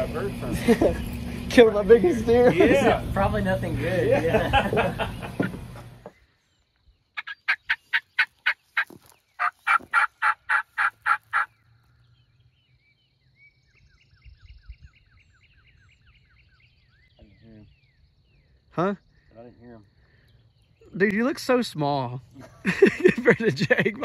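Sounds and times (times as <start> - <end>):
turkey call by mouth: 7.2 - 11.5
faint chirping: 11.3 - 24.0.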